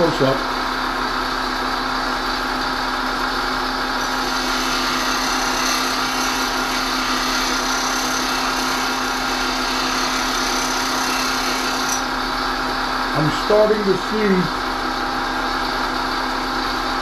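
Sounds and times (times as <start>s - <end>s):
bench grinder motor hum: 4.0s - 12.2s.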